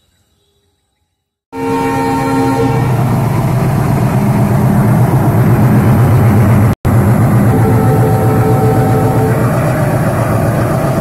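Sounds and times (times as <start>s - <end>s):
locomotive horn chord: 1.5s - 3.0s, 6.9s - 10.0s
diesel engine throbbing: 2.9s - 11.0s.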